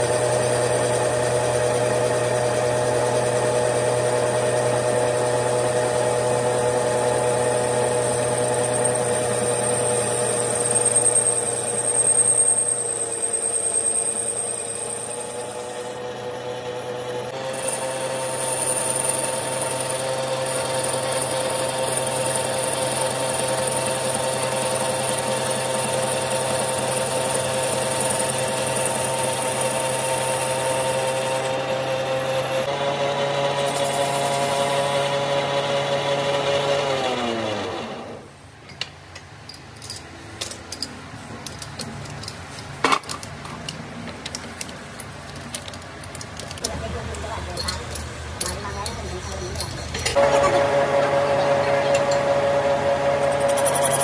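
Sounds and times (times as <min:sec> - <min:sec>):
machine tool whining: 0:00.0 - 0:38.3, 0:45.3 - 0:54.0.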